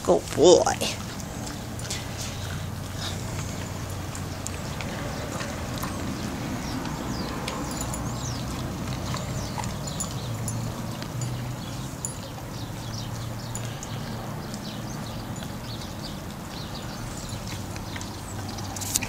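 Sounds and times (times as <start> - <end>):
dog chewing rawhide: 0.8 - 14.7.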